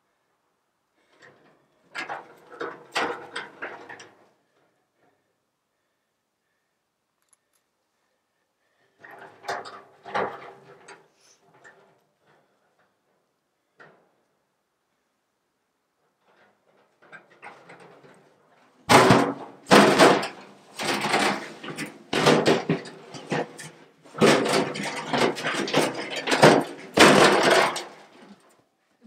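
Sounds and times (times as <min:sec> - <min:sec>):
drum rolling and rattling on grass: 0:01.4 - 0:04.6, 0:09.0 - 0:13.0, 0:16.0 - 0:28.5.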